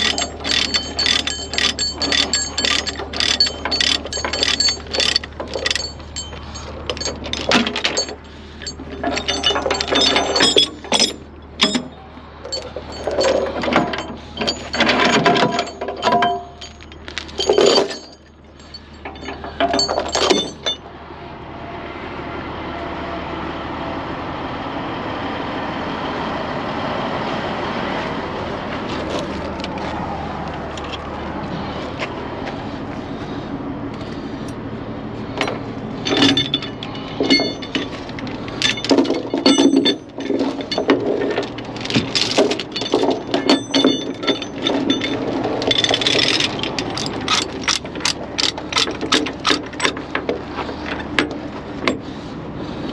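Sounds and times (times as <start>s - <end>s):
metal chains clanking: 0.0s - 20.9s, 35.3s - 52.0s.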